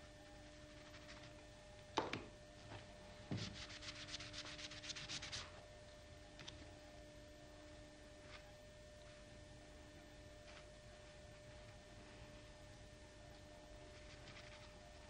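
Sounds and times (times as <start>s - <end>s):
paintbrush scrubbing on paper: 0.8s - 1.3s, 3.4s - 5.6s, 13.9s - 15.0s.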